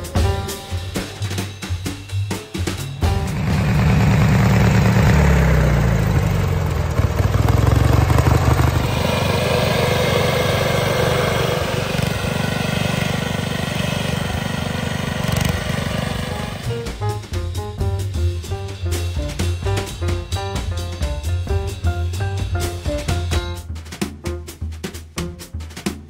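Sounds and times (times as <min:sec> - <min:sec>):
small tractor engine running: 0:03.0 - 0:16.9.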